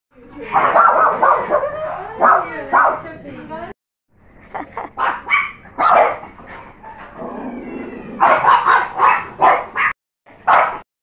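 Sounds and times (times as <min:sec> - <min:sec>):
small dogs barking: 0:00.5 - 0:03.1, 0:04.8 - 0:07.3, 0:08.0 - 0:10.9.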